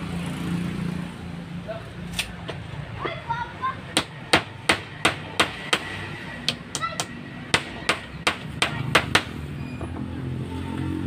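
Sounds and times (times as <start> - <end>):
hammer driving nails into wood: 4.0 - 5.9, 6.5 - 9.4.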